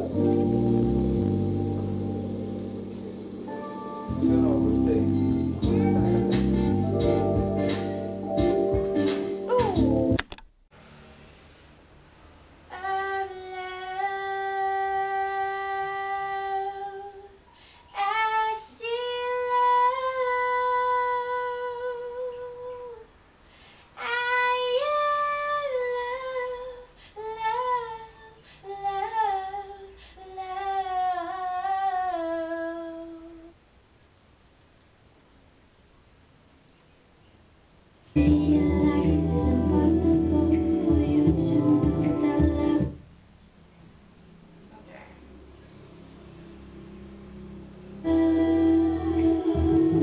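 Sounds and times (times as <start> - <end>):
woman singing: 12.7 - 17.4, 18.0 - 23.1, 24.0 - 33.5, 38.2 - 43.0, 48.1 - 50.0.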